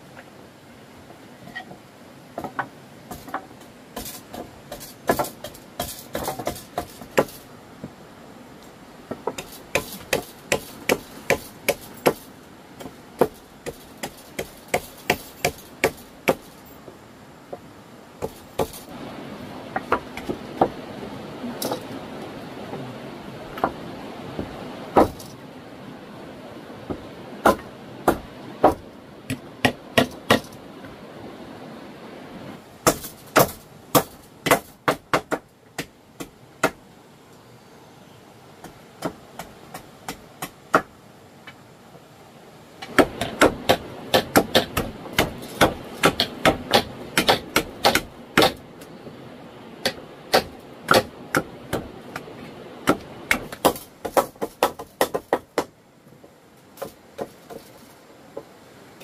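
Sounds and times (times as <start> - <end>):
steady background hiss: 0.0 - 59.0
hand tool striking wood: 2.4 - 7.4, 9.1 - 16.7, 18.2 - 18.9, 19.7 - 20.8, 24.4 - 25.3, 26.9 - 30.6, 32.8 - 36.8, 38.6 - 40.9, 42.8 - 48.6, 49.8 - 55.7, 56.8 - 57.8.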